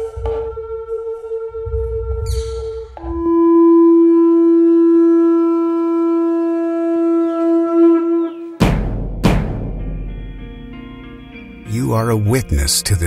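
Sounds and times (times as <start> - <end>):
heavy drum hit: 8.6 - 10.4.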